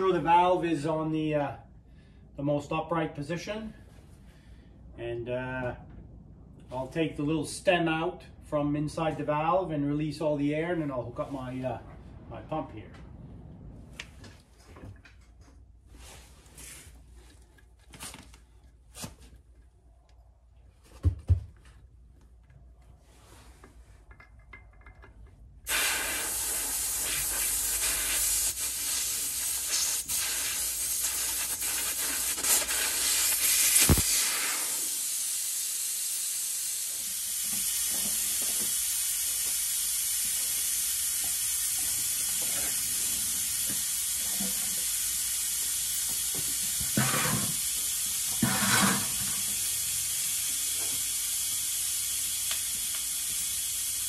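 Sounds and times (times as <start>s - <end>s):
air hissing out of tyre valve: 25.7s - 54.0s.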